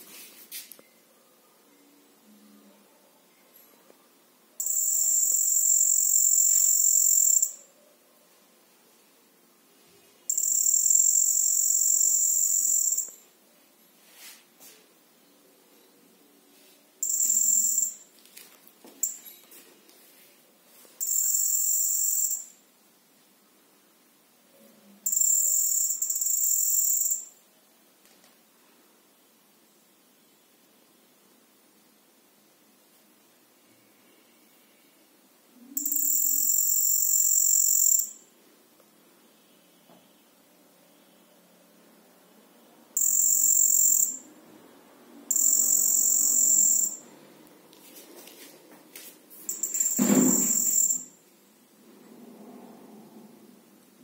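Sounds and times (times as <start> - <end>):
high-pitched buzzer: 4.6 - 7.7, 10.3 - 13.2, 17.0 - 18.1, 21.0 - 22.6, 25.1 - 27.3, 35.8 - 38.2, 43.0 - 44.3, 45.3 - 47.0, 49.5 - 51.2.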